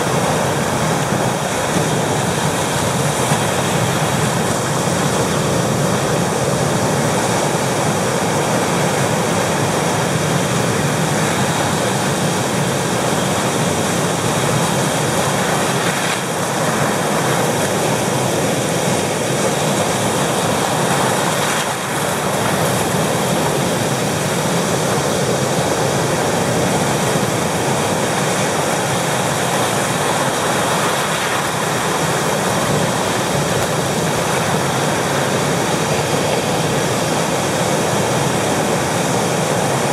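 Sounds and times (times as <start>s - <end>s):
surf breaking over rocks: 0.0s - 39.9s.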